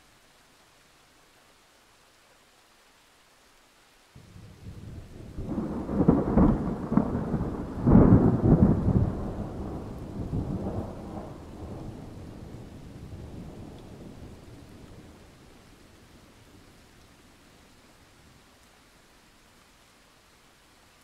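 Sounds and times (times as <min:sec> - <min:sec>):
thunderclap with rolling rumble: 0:04.2 - 0:15.2.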